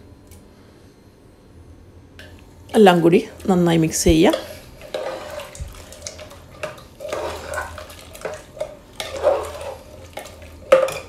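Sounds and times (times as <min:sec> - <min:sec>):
metal spoon stirring thick food: 0:04.3 - 0:11.0.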